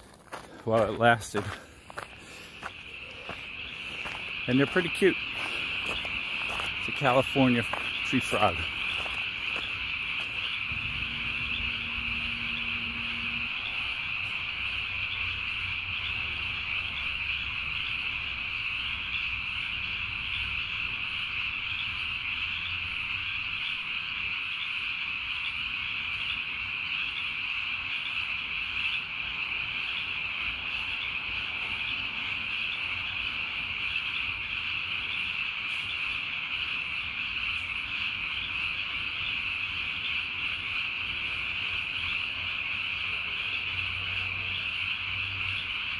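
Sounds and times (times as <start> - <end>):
night chorus of calling animals: 0.0 - 45.9.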